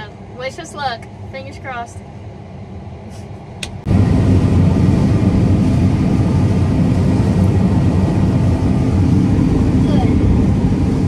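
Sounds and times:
low hum: 0.0s - 11.0s
combine harvester running: 2.9s - 11.0s.

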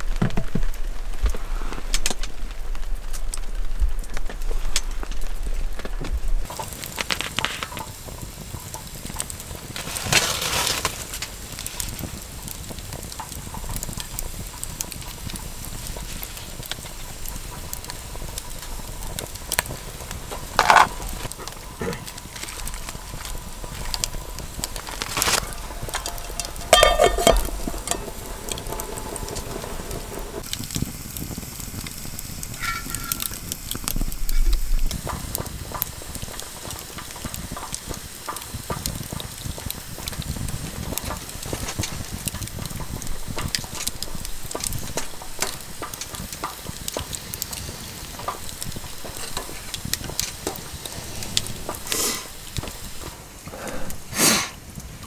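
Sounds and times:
broth simmering in a pot: 0.0s - 55.0s
campfire crackling: 0.0s - 55.0s
metal utensils clinking on pot: 24.8s - 29.4s
metal lid clanking onto pot: 25.2s - 29.2s.

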